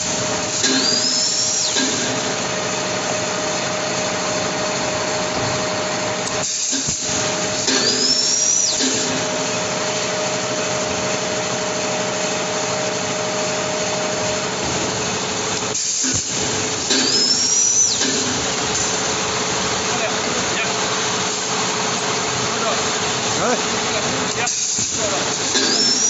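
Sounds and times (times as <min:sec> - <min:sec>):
machine mechanical noise and hum: 0:00.0 - 0:26.0
machine whine: 0:00.0 - 0:26.0.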